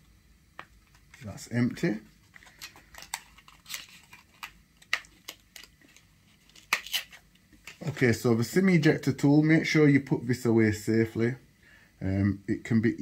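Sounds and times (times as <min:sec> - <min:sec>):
cardboard crinkling: 0:02.1 - 0:08.1.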